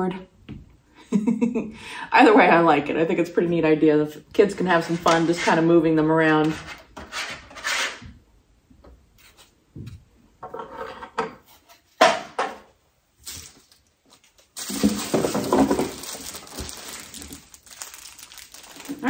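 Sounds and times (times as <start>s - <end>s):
paper packaging rustling: 13.2s - 19.0s.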